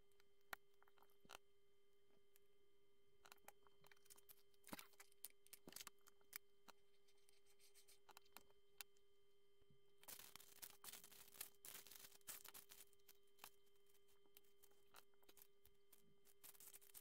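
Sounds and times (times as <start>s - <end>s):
faint steady hum: 0.0s - 17.0s
rustling: 10.0s - 17.0s.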